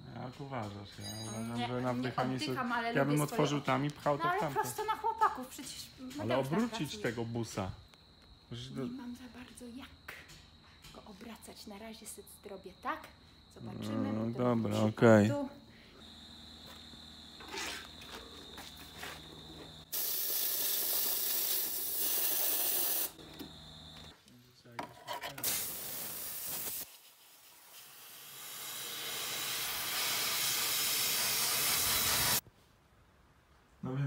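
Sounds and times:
compressed air blow gun hissing: 19.9s - 23.2s, 25.4s - 32.4s.

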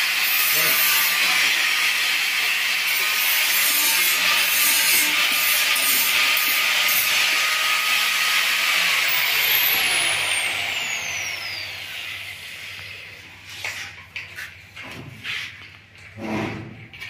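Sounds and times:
power tool motor whirring: 0.0s - 13.2s.

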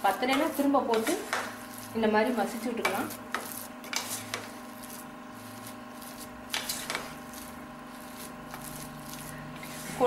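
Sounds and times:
spatula mashing rice: 0.0s - 10.0s
spatula scraping a pot: 0.0s - 10.0s
steady background hum: 0.0s - 10.0s.

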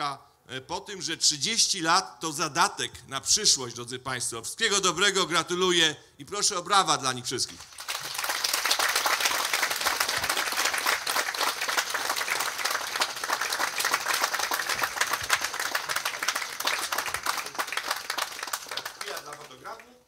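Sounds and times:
audience applause: 7.6s - 20.0s.

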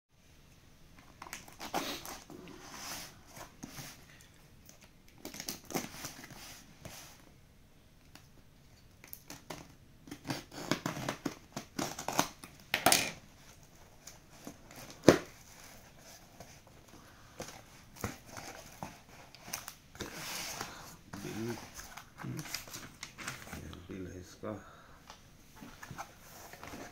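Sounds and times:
tape and cardboard ripping: 1.2s - 3.0s, 9.0s - 13.2s.

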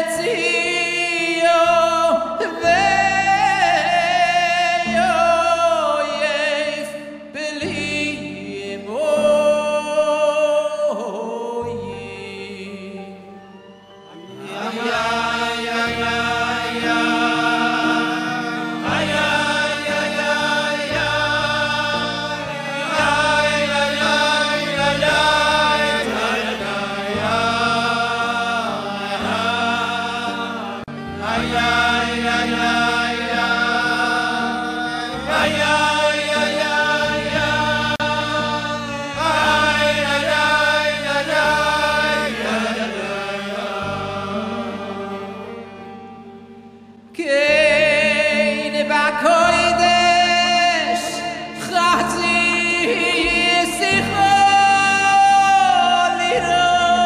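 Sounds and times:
men singing together: 14.4s - 45.3s, 47.3s - 57.0s.

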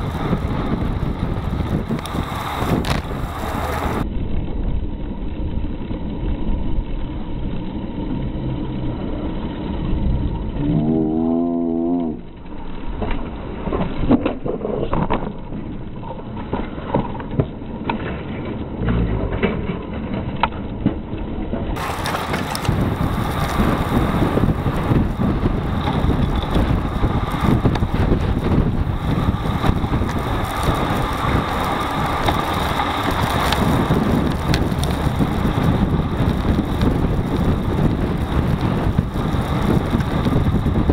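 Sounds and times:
wind buffeting microphone: 0.0s - 7.1s, 21.7s - 40.9s
bike rattles and knocks: 0.0s - 8.5s, 12.4s - 40.9s
road and tyre rumble: 0.0s - 40.9s.

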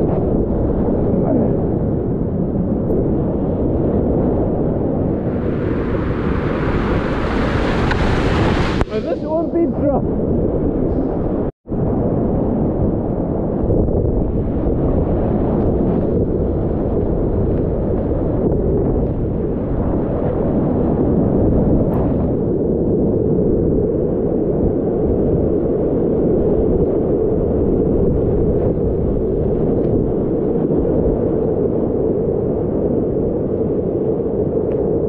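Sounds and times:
whitewater rapids rushing: 5.2s - 9.6s.

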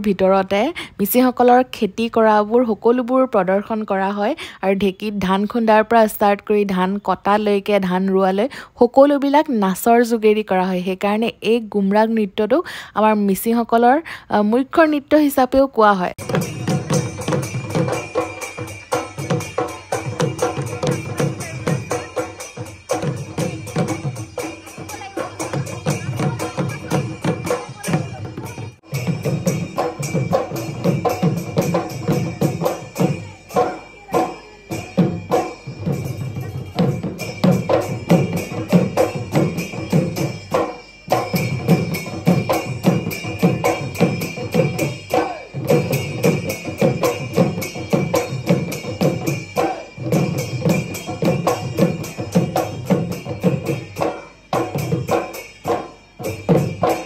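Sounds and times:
drums beating driving rhythm: 16.1s - 57.0s
sharp clicking percussion: 16.2s - 57.0s.

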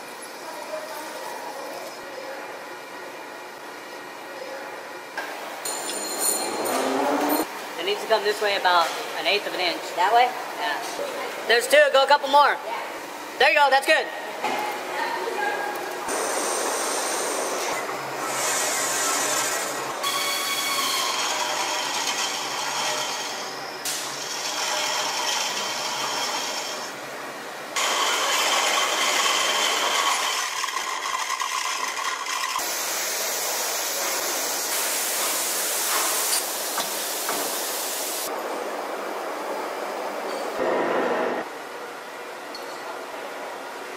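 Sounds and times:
lathe tool cutting metal: 16.1s - 23.6s, 24.2s - 26.9s, 27.8s - 32.6s.

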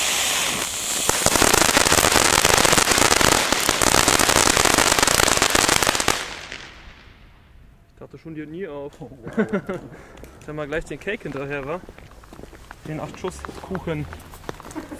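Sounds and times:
firework fountain hissing and crackling: 0.0s - 7.3s.

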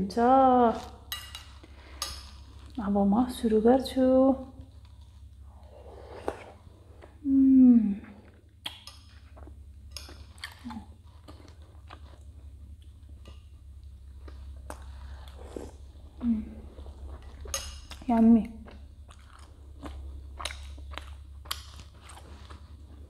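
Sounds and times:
steady low hum: 0.0s - 23.0s
hummed mmm of enjoyment: 7.2s - 8.4s
wet chewing and lip smacks: 17.2s - 22.6s.

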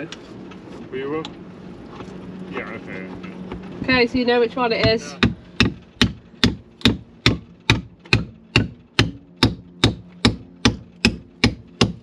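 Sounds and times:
hammer driving nail into wood: 5.2s - 12.0s.

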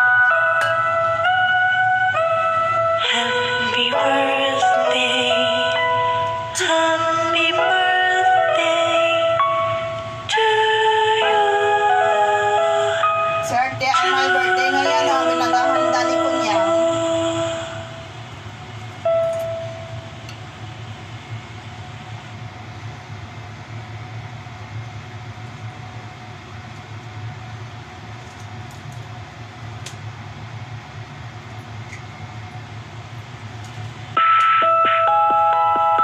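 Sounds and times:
music: 0.0s - 18.2s, 19.0s - 20.2s, 34.2s - 36.0s
faint steady hum: 0.0s - 36.0s.

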